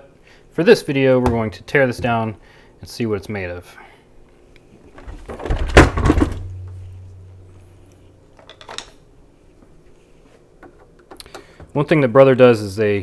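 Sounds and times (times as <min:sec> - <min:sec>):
tools clattering on workbench: 0:08.4 - 0:09.0.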